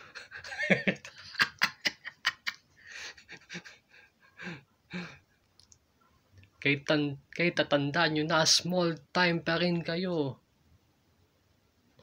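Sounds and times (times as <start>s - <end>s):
person huffing and panting: 2.8s - 5.3s
person speaking: 6.6s - 10.4s.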